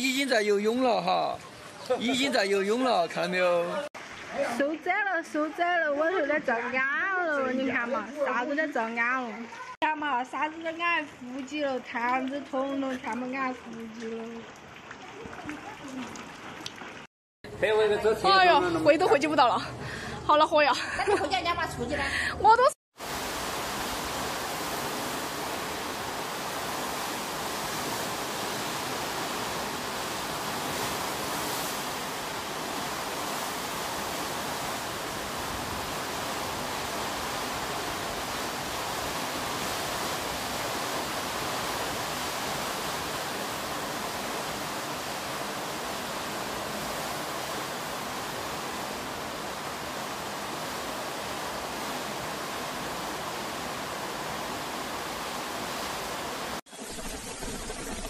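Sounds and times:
flooded river rushing: 0.0 - 6.8, 23.0 - 56.6.

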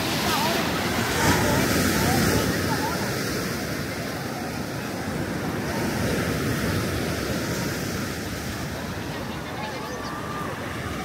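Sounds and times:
sea waves washing on beach: 0.0 - 11.0.

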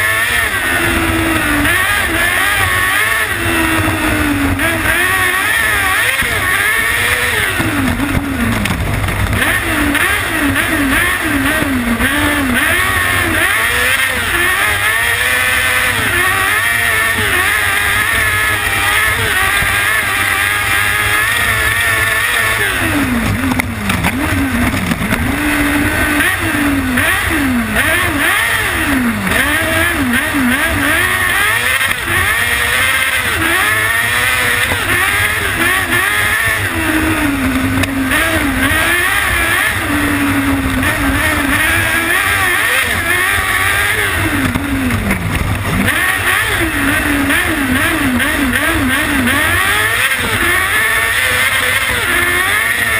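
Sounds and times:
constant low rumble: 0.0 - 52.9
motorcycle engine revving: 0.0 - 52.9.

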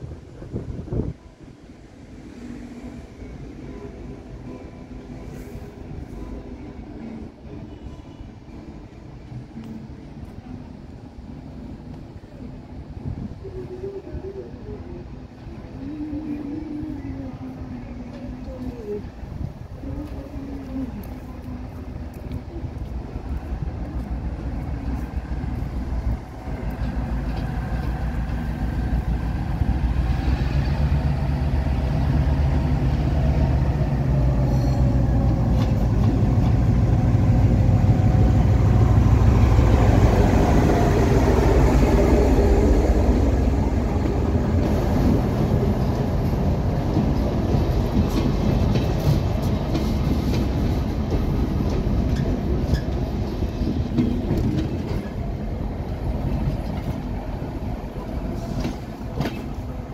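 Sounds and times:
locomotive engine drone: 0.0 - 59.9
coach wheels clattering over rail joints: 23.3 - 59.9.

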